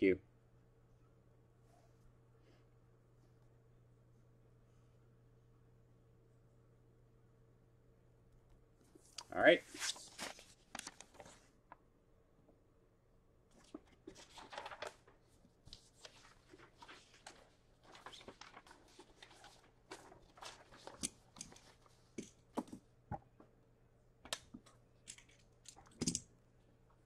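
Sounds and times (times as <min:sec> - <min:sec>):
paper and packaging rustling: 0:09.7 - 0:11.5, 0:13.5 - 0:22.8.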